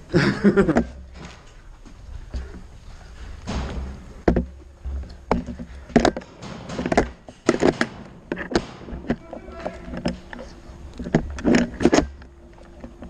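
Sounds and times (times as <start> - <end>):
gear knocking and thudding: 3.4 - 13.0.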